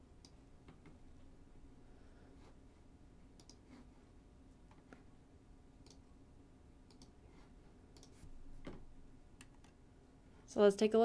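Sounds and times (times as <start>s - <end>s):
mouse and keyboard clicks: 7.9s - 8.8s.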